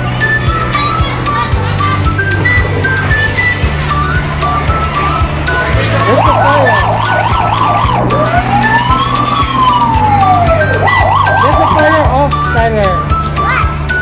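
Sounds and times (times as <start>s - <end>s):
music with steady beat: 0.0s - 14.0s
siren warbling: 1.8s - 12.2s.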